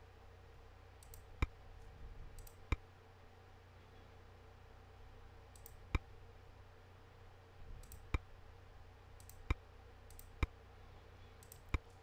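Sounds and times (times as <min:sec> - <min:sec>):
faint low hum: 0:00.0 - 0:12.0
computer mouse clicks: 0:01.0 - 0:01.6, 0:02.4 - 0:02.8, 0:05.5 - 0:06.1, 0:07.8 - 0:08.2, 0:09.2 - 0:10.5, 0:11.4 - 0:12.0.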